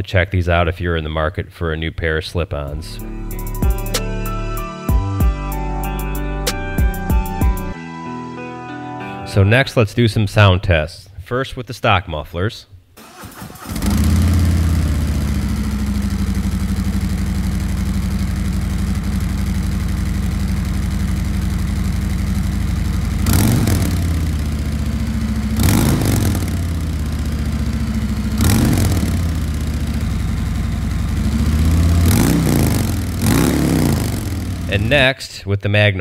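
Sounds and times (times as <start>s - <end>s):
motorcycle engine idling: 13.8s - 34.9s
motorcycle throttle blips: 13.8s - 34.9s.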